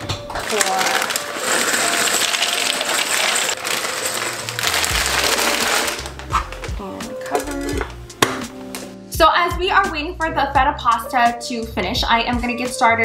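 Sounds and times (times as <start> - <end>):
dry pasta pouring into pot: 0.4 - 6.3
background music with bass: 4.5 - 13.0.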